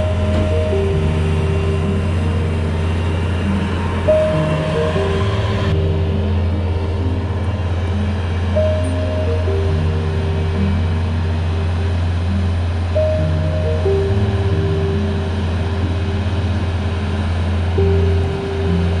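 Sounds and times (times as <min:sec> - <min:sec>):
background music melody: 0:00.0 - 0:19.0
low engine drone: 0:00.0 - 0:19.0.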